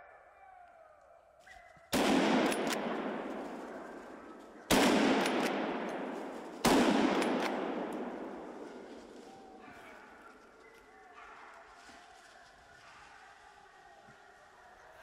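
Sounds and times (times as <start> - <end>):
gunshots echoing: 1.9 - 10.1.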